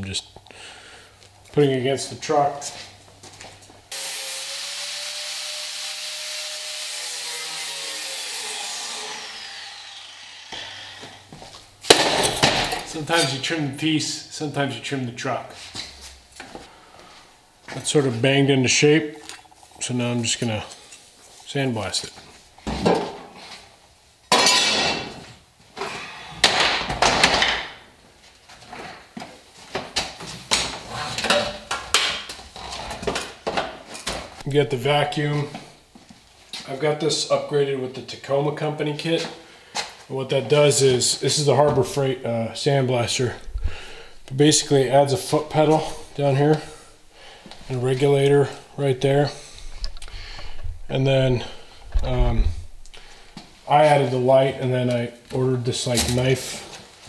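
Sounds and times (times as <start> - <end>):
grinder rasping on sheet steel: 3.9 - 11.3
grinder whine winding down: 3.9 - 11.3.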